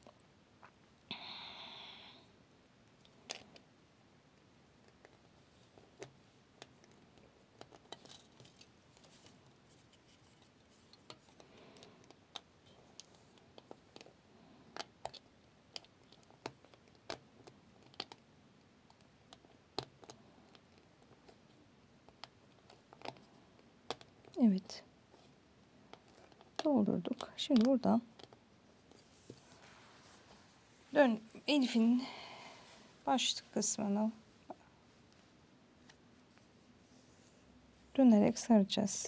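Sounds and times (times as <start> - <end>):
wire clicking against nails: 14.7 - 18.2.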